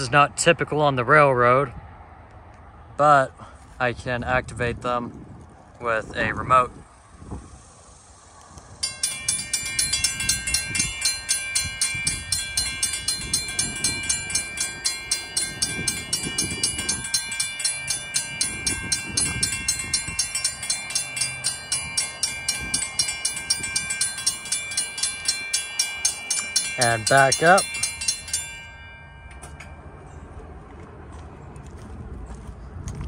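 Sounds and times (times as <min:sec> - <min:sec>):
railroad crossing bells ringing: 0:08.7 - 0:30.7.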